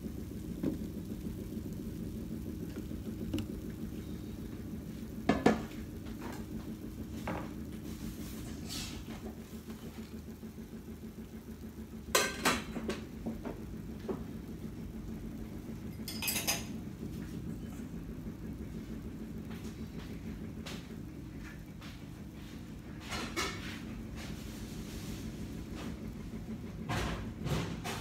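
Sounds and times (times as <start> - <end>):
steady low hum: 0.0 - 28.0
metal cookware clinking: 16.0 - 16.7.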